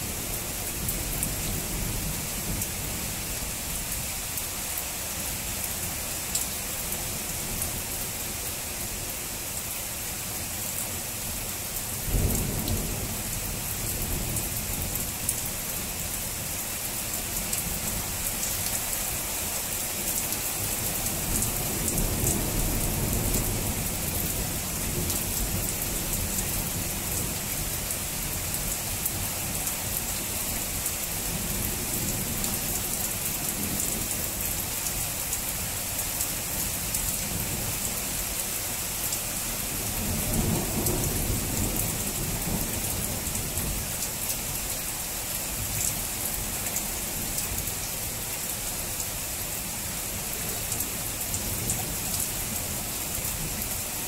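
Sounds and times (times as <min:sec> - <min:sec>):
heavy rain: 0:00.0 - 0:54.0.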